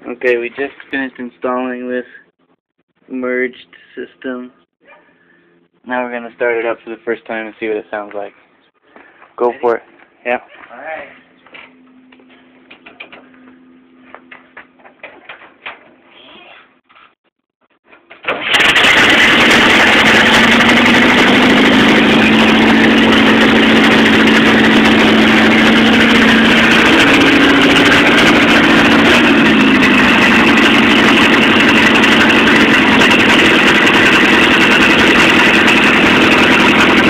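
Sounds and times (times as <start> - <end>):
car engine running loud: 18.4 - 37.0.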